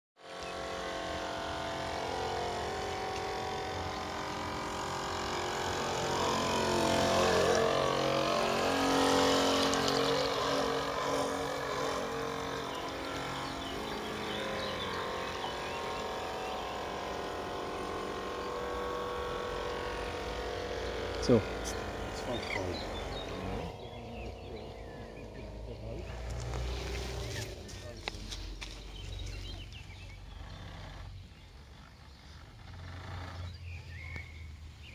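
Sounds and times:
propeller and water noise: 0.2s - 34.1s
model boat motor humming: 0.2s - 34.9s.

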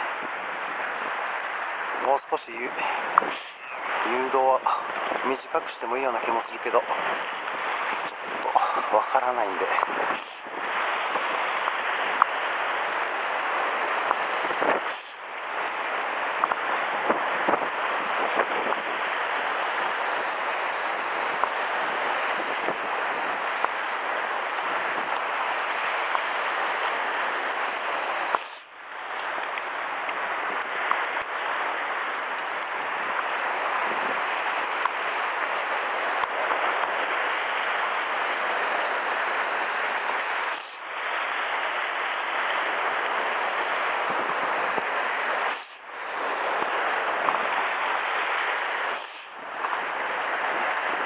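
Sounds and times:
surf breaking on rocky shore: 0.0s - 51.0s.

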